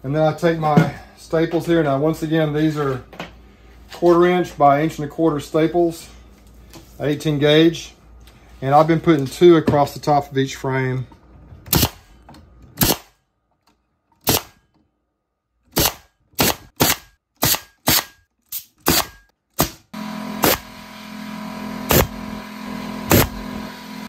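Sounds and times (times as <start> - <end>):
staple gun firing: 11.7 - 12.0, 12.8 - 13.1, 14.2 - 14.6, 15.8 - 19.8.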